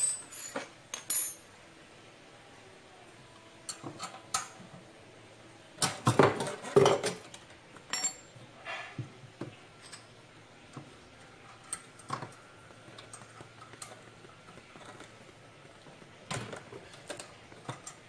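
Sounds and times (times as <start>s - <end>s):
metal parts clinking: 0.0s - 1.4s, 7.9s - 8.3s.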